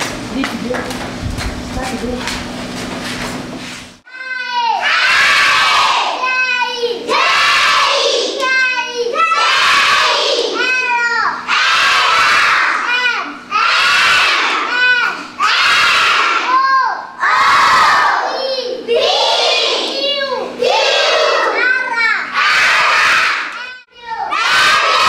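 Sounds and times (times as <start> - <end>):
children chanting in unison: 4.8 - 13.0, 13.6 - 21.6, 22.3 - 23.5, 24.2 - 25.0.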